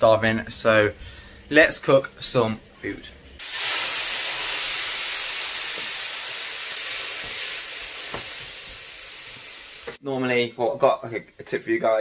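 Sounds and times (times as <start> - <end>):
chicken sizzling in a frying pan: 3.4 - 10.0.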